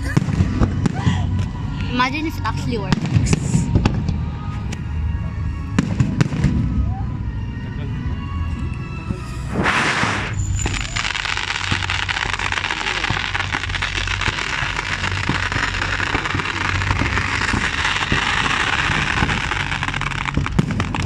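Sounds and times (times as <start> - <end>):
fireworks fizzing and crackling: 0.0 - 4.9, 5.8 - 6.9, 9.2 - 21.0
sharp firework pops: 5.8 - 6.7, 9.5 - 21.0.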